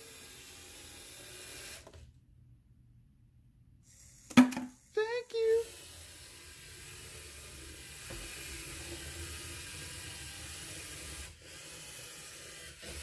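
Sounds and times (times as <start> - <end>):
robot motors whirring: 5.6 - 13.0.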